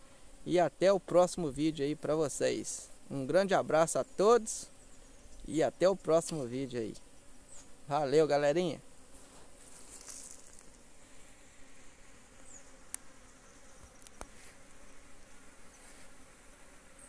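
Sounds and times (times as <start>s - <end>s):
bees buzzing: 0.0s - 17.0s
small sharp clicks: 12.8s - 13.1s, 13.8s - 14.4s.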